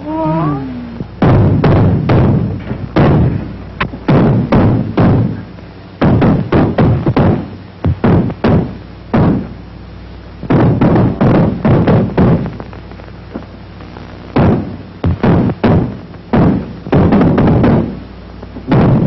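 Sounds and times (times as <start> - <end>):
sharp ringing knocks and thumps: 1.2 - 9.5.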